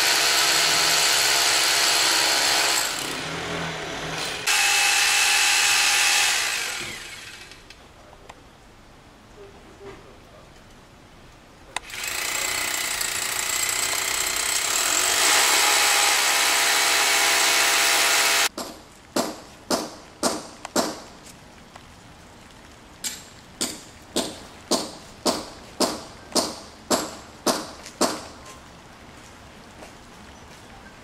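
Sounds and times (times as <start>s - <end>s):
electric drill boring into brick: 0.0s - 7.6s, 11.8s - 18.5s
sharp knocks: 18.5s - 21.1s, 23.6s - 28.3s.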